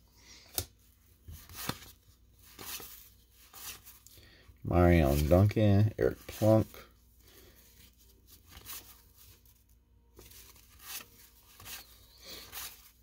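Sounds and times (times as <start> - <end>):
cards sliding against each other: 10.2 - 13.0.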